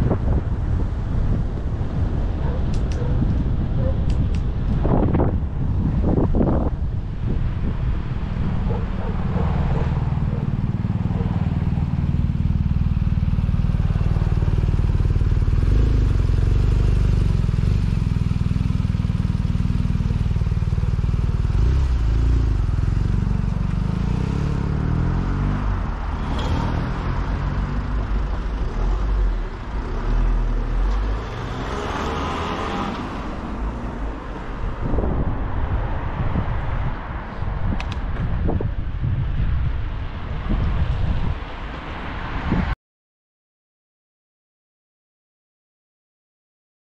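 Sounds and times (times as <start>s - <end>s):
wind rumble on microphone: 0.0s - 24.4s, 33.1s - 42.8s
road noise: 0.0s - 42.8s.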